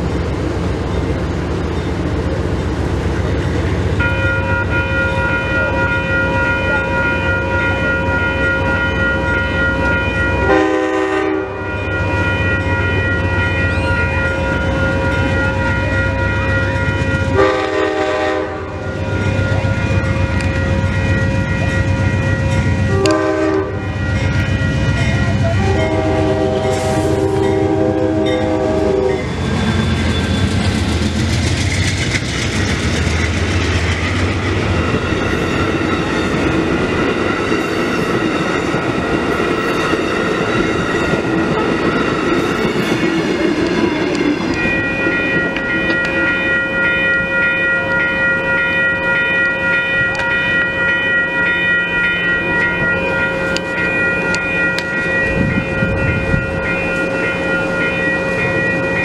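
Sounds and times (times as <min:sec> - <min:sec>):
train clickety-clack on rails: 0:00.0 - 0:59.0
pulsing ringing tone: 0:04.0 - 0:26.7, 0:33.6 - 0:59.0
train horn chord: 0:10.4 - 0:12.3, 0:17.3 - 0:19.0, 0:22.9 - 0:24.2, 0:25.6 - 0:29.3.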